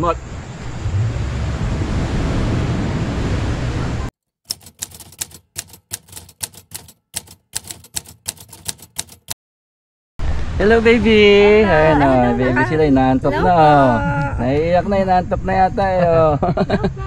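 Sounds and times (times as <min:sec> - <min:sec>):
typewriter keystroke clicks: 0:04.5 - 0:09.4.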